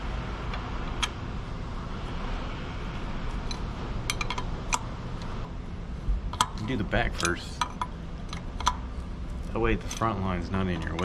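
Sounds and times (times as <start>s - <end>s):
steady background hiss: 0.0s - 11.0s
wrench clicking on metal fitting: 6.4s - 8.8s.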